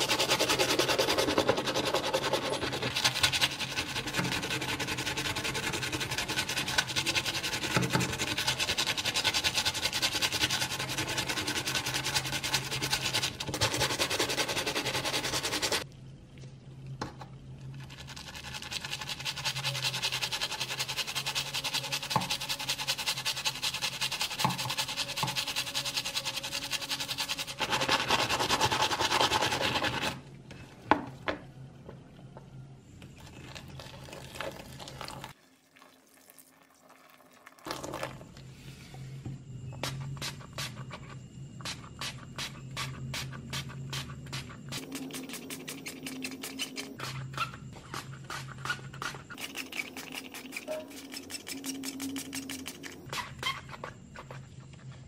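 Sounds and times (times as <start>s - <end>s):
stiff brush scrubbing: 0.0s - 15.8s, 17.8s - 30.2s, 42.8s - 54.4s.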